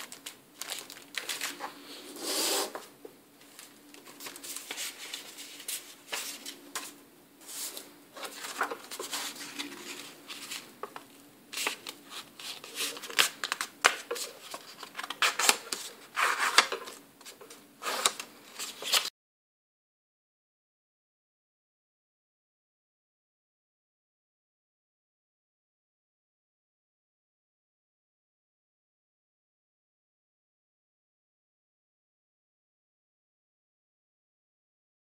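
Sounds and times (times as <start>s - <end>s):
paper rustling and crinkling: 0.0s - 2.8s, 3.4s - 19.1s.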